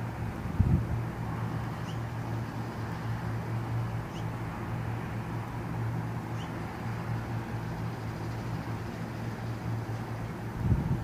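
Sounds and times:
steady low hum: 0.0s - 11.0s
bird chirping: 1.8s - 2.1s, 4.1s - 4.4s, 6.4s - 6.6s.

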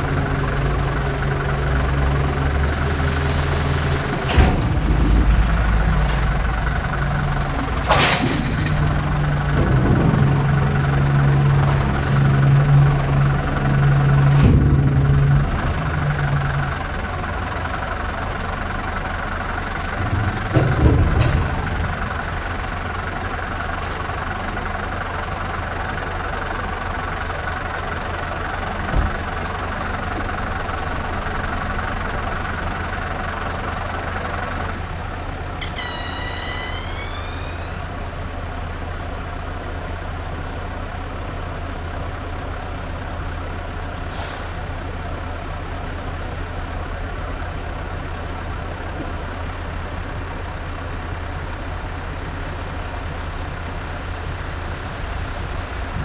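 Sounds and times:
diesel engine idling: 0.0s - 56.0s
air brake hiss with whistle: 35.6s - 37.9s, 44.1s - 44.6s.

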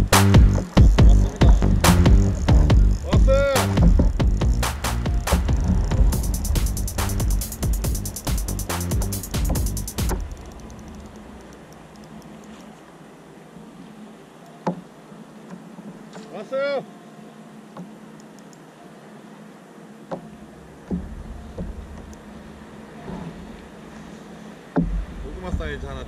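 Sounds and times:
faint steady hum: 0.0s - 26.0s
knocks in a kayak: 20.1s - 22.0s, 24.7s - 25.8s.

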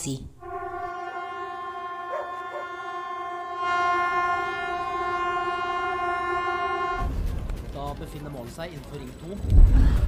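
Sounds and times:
warning siren steady tone: 0.4s - 7.0s.

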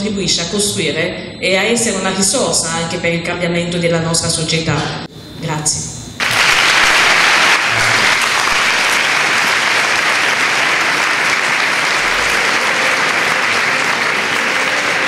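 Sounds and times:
audience applauding: 6.2s - 15.0s.

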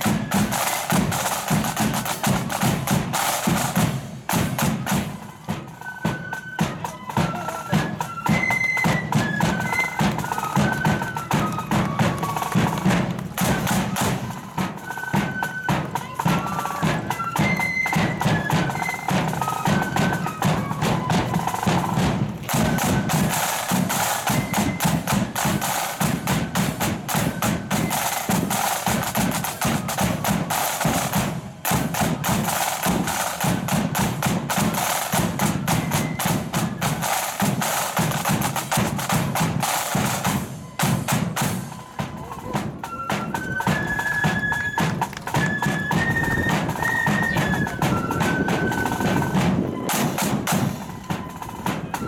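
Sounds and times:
side drums rudimental pattern: 0.0s - 52.0s
faint held flute notes: 4.6s - 33.4s, 40.0s - 52.0s.

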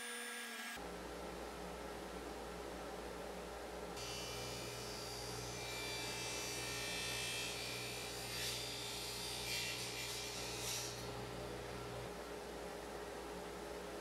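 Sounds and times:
saw cutting wood: 4.0s - 11.2s.

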